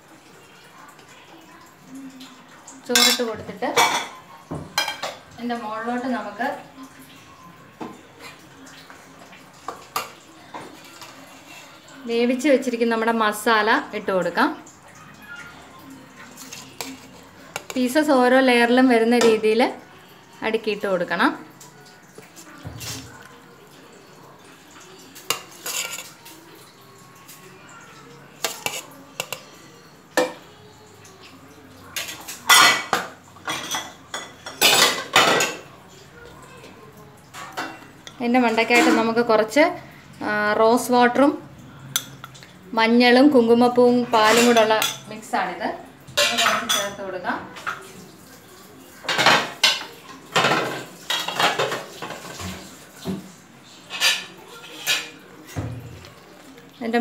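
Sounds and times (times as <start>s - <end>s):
utensils and dishes clinking: 1.5s - 19.9s, 20.6s - 39.6s, 41.1s - 42.6s, 43.5s - 45.2s, 46.0s - 57.0s
metal spoon scraping cookware: 2.9s - 4.0s, 25.3s - 26.2s, 28.4s - 29.4s.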